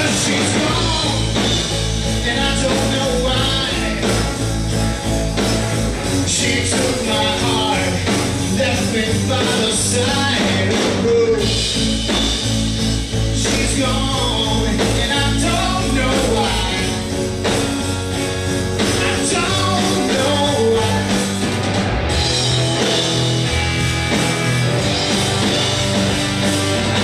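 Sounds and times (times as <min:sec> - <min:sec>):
person singing: 0:00.0 - 0:04.3, 0:06.2 - 0:11.6, 0:13.3 - 0:17.2, 0:18.8 - 0:21.4
drums: 0:00.0 - 0:27.0
electric guitars: 0:00.0 - 0:27.0.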